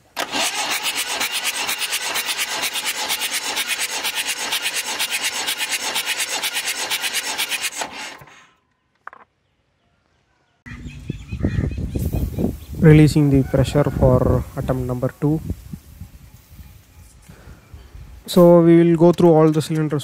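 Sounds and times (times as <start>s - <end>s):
diesel engine cranking: 0.0s - 8.4s.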